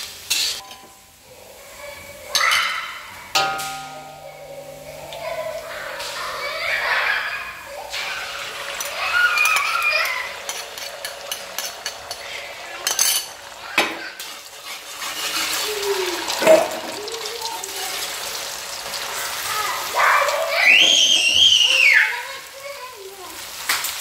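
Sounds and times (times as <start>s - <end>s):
utensil stirring and clinking: 0.3s - 1.4s, 2.0s - 19.8s.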